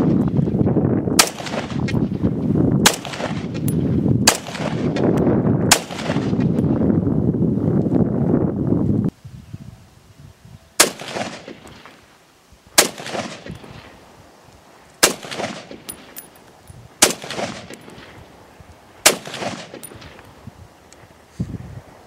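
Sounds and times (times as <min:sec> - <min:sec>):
rifle shots with echo: 0:01.2 - 0:02.0, 0:02.8 - 0:06.5, 0:10.8 - 0:12.0, 0:12.8 - 0:14.0, 0:15.0 - 0:16.2, 0:17.0 - 0:18.2, 0:19.0 - 0:20.2.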